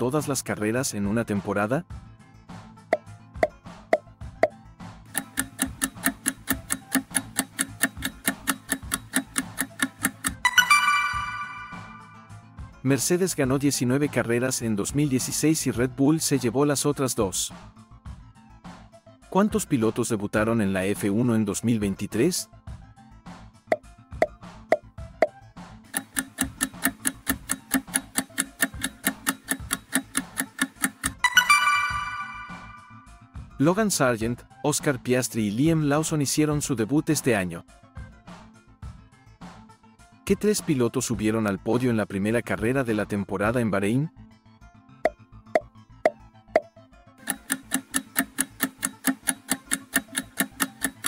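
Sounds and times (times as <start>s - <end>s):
fast clock ticking: 5.1s - 10.5s, 25.9s - 31.3s, 47.2s - 51.0s.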